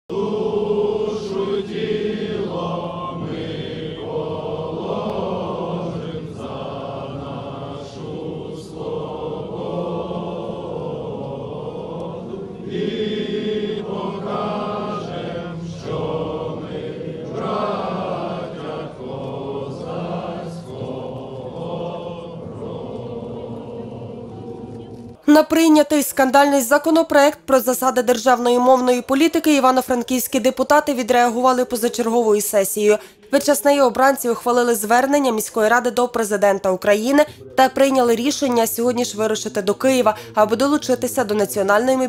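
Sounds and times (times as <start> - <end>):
crowd singing together: 0.1 - 25.2.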